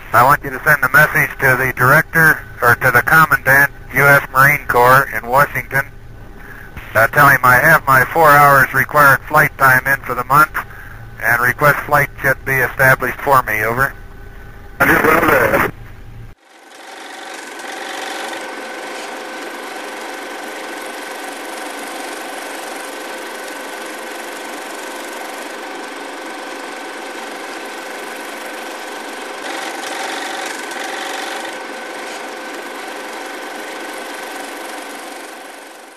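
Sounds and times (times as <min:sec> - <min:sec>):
film projector whirring: 0:13.9 - 0:35.9.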